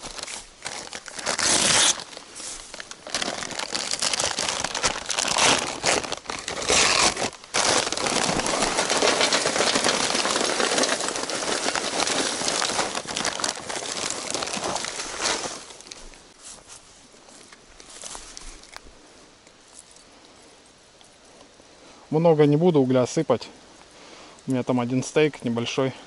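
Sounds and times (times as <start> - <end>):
bag crinkling and rustling: 0.0 - 18.9.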